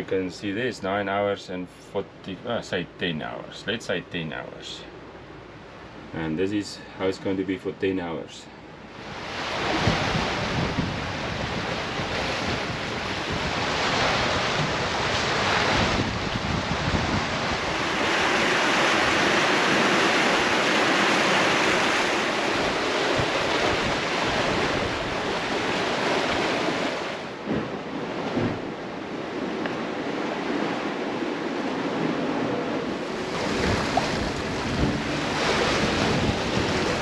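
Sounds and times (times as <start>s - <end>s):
water rushing along a hull: 0.0s - 37.0s
wind buffeting microphone: 8.9s - 37.0s.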